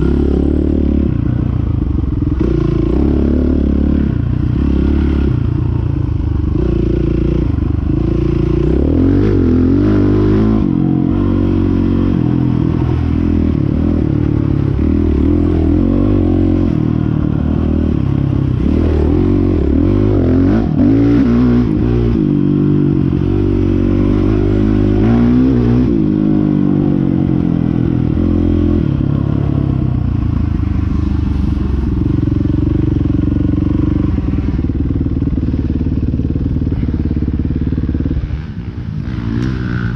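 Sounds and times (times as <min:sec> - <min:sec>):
dirt bike engine revving: 0:00.0 - 0:05.8, 0:06.4 - 0:29.4.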